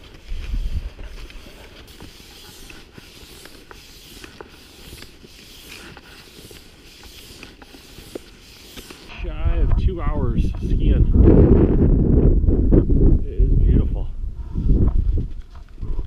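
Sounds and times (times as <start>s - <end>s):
ski poles clicking: 0.0s - 9.1s
skis scraping over snow: 0.0s - 9.3s.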